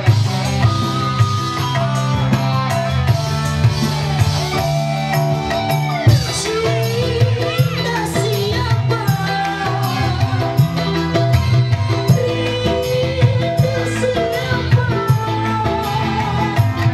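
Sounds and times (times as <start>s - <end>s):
electronic keyboard melody: 0.0s - 16.9s
live band music: 0.0s - 16.9s
woman singing: 6.0s - 16.9s.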